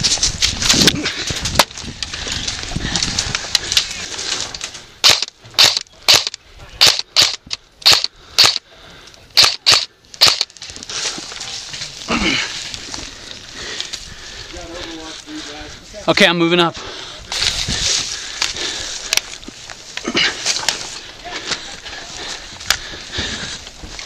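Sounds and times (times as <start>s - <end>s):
airsoft gun shots: 5.0s - 8.6s.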